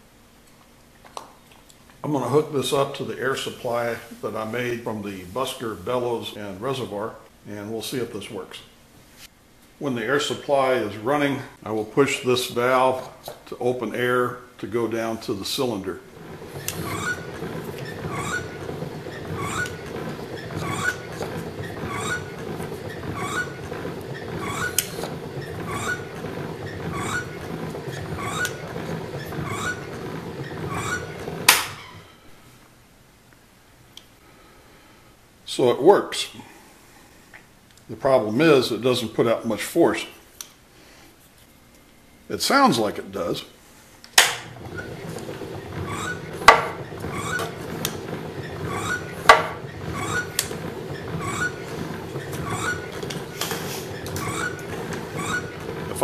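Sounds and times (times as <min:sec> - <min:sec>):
wooden air cylinder clacking: 0:16.1 - 0:31.9, 0:44.2 - 0:56.0
rhythmic bellows wheeze: 0:16.2 - 0:32.1, 0:44.6 - 0:56.0
soft air puffs: 0:40.2 - 0:41.5, 0:43.5 - 0:46.5, 0:48.8 - 0:55.8.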